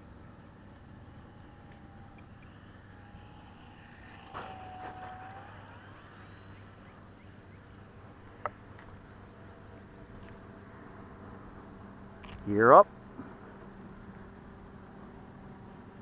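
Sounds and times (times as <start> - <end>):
electric motor whine: 0.0 - 12.4.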